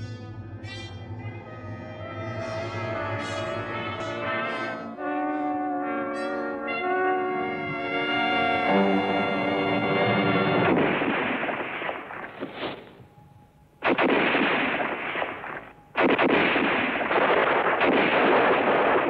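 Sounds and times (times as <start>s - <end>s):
dense gunfire: 10.6s - 13.0s, 13.8s - 19.0s
explosion blasts: 10.6s - 13.0s, 13.8s - 19.0s.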